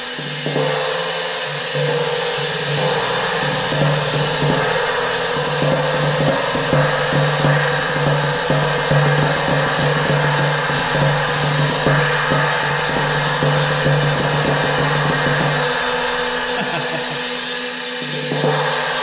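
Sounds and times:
cymbal rolled with mallets: 0.0 - 19.0.

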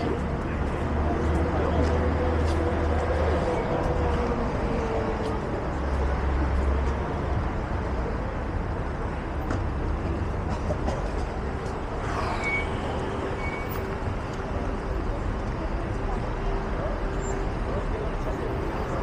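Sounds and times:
cars passing with low rumble: 0.0 - 19.0
murmur of pedestrians' voices: 0.0 - 19.0
high squeal: 12.0 - 13.8.

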